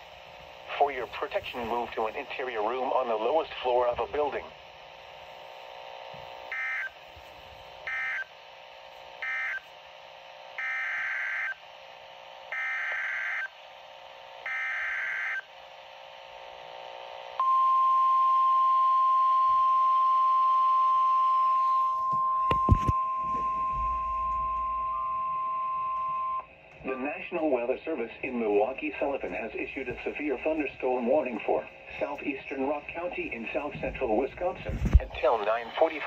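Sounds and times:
steady warning alarm tone: 0:06.4 - 0:08.4, 0:09.2 - 0:09.7, 0:10.6 - 0:11.6, 0:12.5 - 0:13.6, 0:14.4 - 0:15.6, 0:17.4 - 0:27.1.

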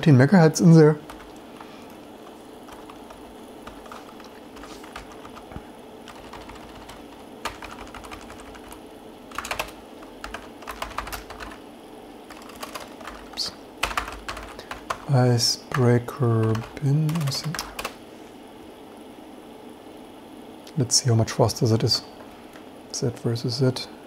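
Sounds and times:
faint steady hum: 0:00.0 - 0:24.0
typing on computer keyboard: 0:01.1 - 0:01.7, 0:02.7 - 0:05.4, 0:06.1 - 0:11.6, 0:12.3 - 0:15.1, 0:16.4 - 0:18.0.

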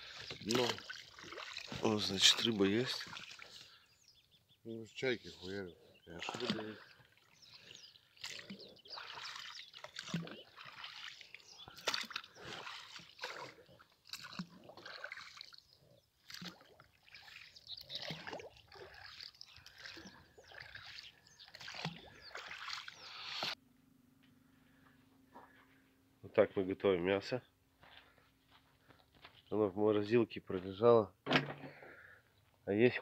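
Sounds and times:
oars splashing in water: 0:00.0 - 0:04.2, 0:05.1 - 0:23.6.

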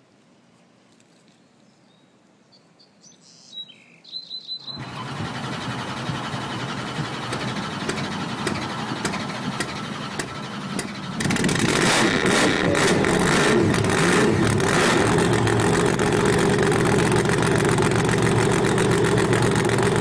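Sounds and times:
high bird chirps: 0:01.8 - 0:04.9
truck engine running: 0:04.7 - 0:20.0.

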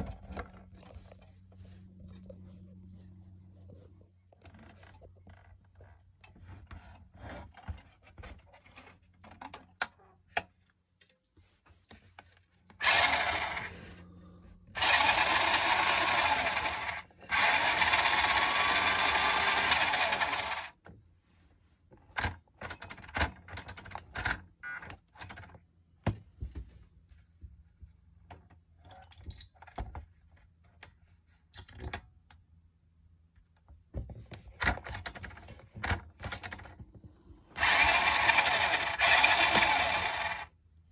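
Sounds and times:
toy truck electric motor running: 0:12.8 - 0:14.0, 0:14.8 - 0:20.8, 0:37.6 - 0:40.5.

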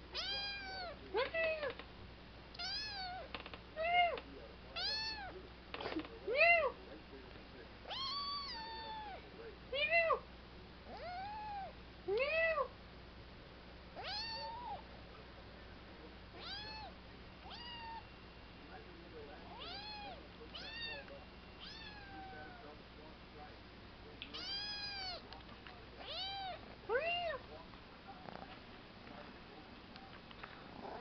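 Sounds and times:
kitten meowing: 0:00.1 - 0:01.0, 0:02.6 - 0:03.3, 0:04.8 - 0:05.3, 0:07.9 - 0:09.2, 0:10.9 - 0:12.6, 0:14.0 - 0:14.8, 0:16.4 - 0:18.0, 0:19.5 - 0:22.6, 0:24.3 - 0:25.2, 0:26.0 - 0:27.4.

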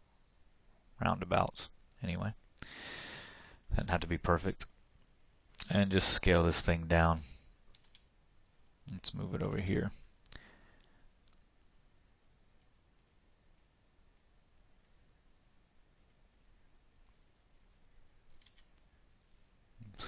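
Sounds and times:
faint computer mouse clicks: 0:07.7 - 0:09.0, 0:10.1 - 0:11.4, 0:12.4 - 0:15.0, 0:16.0 - 0:16.2, 0:18.3 - 0:19.4.

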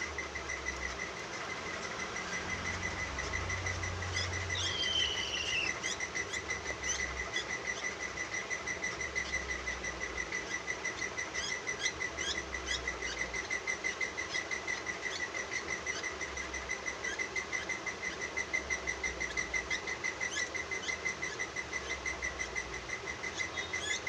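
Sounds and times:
baby parakeet chirping: 0:00.0 - 0:24.0
falling whistled call: 0:04.5 - 0:05.8.

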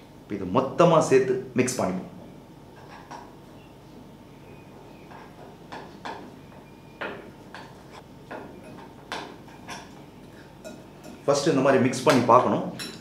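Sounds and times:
metal spoon clinking on glass bowl: 0:10.6 - 0:11.3, 0:12.7 - 0:13.0.

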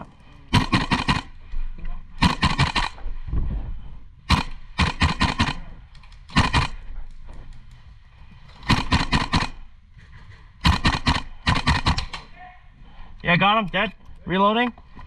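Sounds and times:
airsoft rifle rapid shots: 0:00.5 - 0:01.4, 0:02.2 - 0:03.0, 0:04.3 - 0:06.8, 0:08.6 - 0:09.7, 0:10.6 - 0:12.2.

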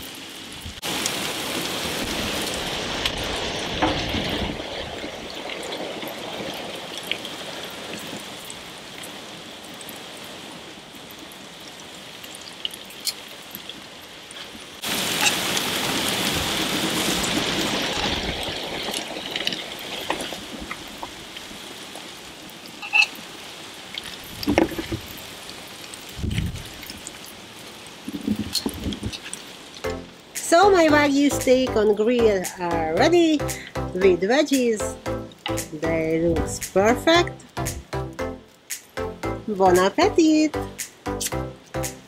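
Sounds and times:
food sizzling on a grill: 0:00.0 - 0:33.6.

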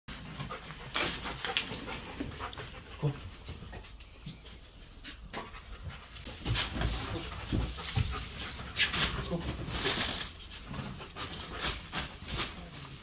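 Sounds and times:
dog panting: 0:00.1 - 0:09.6
rustling of objects moved: 0:00.1 - 0:13.0.

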